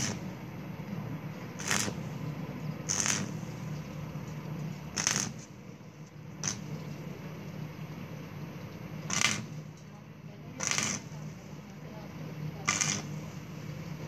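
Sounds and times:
welding arc crackling: 0.0 - 0.4, 1.4 - 7.0, 8.9 - 11.8, 12.6 - 14.0
steady low hum: 0.0 - 14.0.

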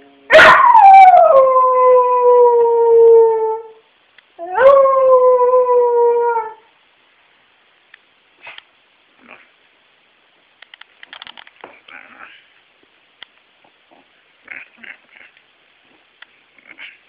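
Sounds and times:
dog howling: 0.3 - 3.8.

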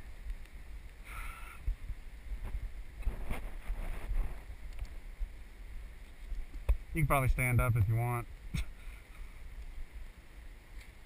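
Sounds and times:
faint rustles and ticks: 0.0 - 11.0
wind rumble on microphone: 1.5 - 8.7.

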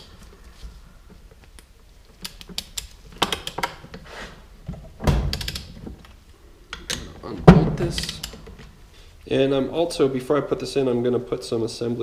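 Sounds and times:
heavy metal knock: 7.4 - 8.2.

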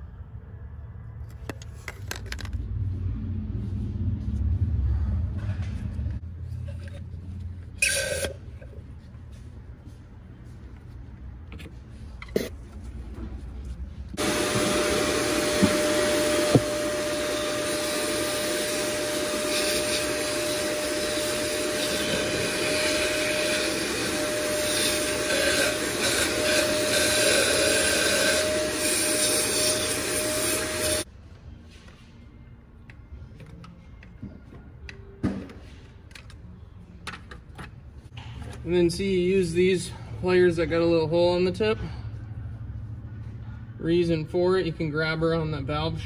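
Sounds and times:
shop vacuum motor whine: 14.2 - 31.1.

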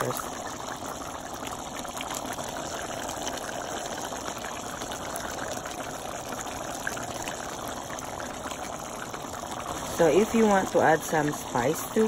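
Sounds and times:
thick sauce bubbling: 0.0 - 12.0.

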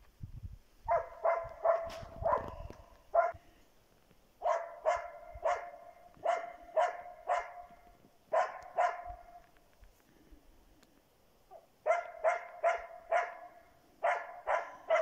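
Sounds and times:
dog barking: 0.9 - 3.4, 4.4 - 9.4, 11.5 - 15.0.

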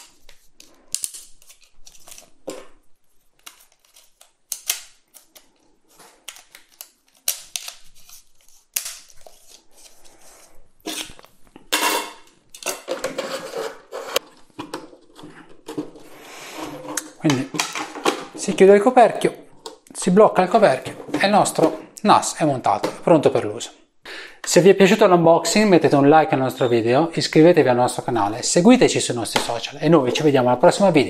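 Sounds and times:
scraping and knocking: 12.8 - 18.5.

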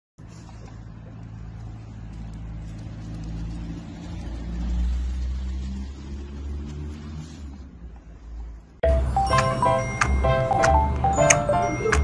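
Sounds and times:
vehicle engine running: 0.2 - 12.0.

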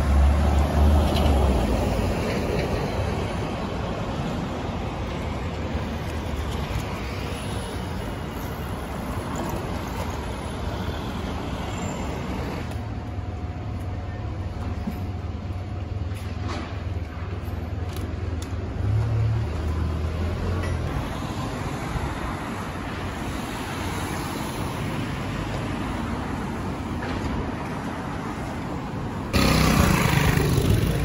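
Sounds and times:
hum of engines and tyres: 0.0 - 31.0
cars driving past: 28.4 - 31.0.

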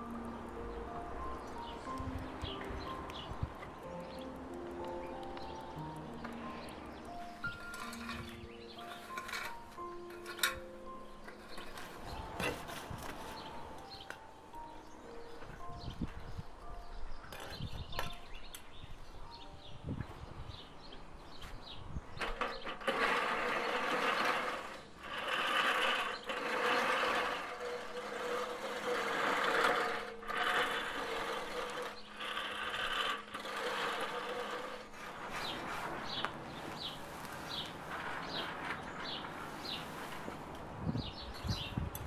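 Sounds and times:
birds chirping: 0.0 - 24.9, 30.6 - 42.0
lawn mower cutting grass: 4.3 - 14.1, 22.2 - 40.4.

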